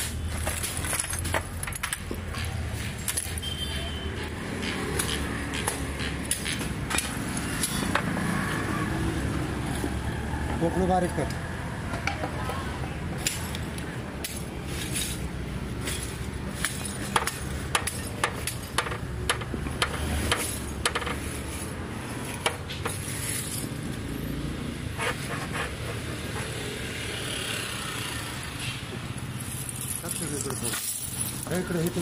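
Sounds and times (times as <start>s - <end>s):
knocks and clinks of hard objects: 0.0s - 8.6s, 11.8s - 12.6s, 13.2s - 24.1s, 28.6s - 32.0s.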